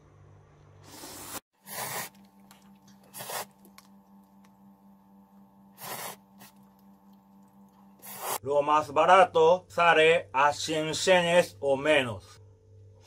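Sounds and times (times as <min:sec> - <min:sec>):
person slurping noodles: 0:00.9 - 0:03.7, 0:05.8 - 0:06.7, 0:07.9 - 0:08.4
faint steady hum: 0:02.1 - 0:13.0.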